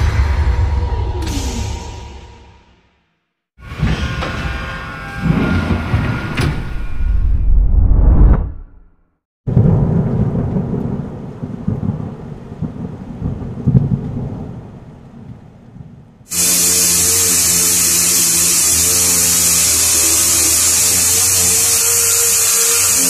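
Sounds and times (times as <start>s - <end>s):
low thunder-like rumble: 9.5s - 16.0s
pneumatic orbital sander: 16.3s - 23.0s.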